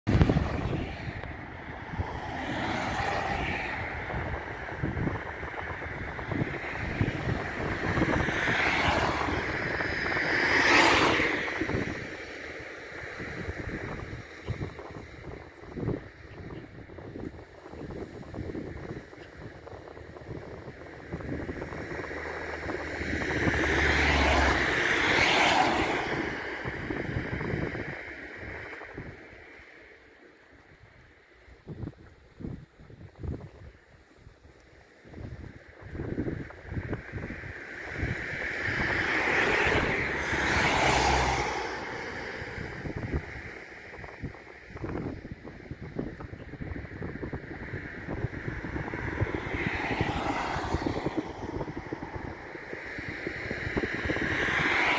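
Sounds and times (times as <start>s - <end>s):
road traffic passing: 0.0s - 54.9s
wind buffeting microphone: 0.0s - 54.9s
van passing: 0.1s - 15.2s, 17.0s - 29.6s.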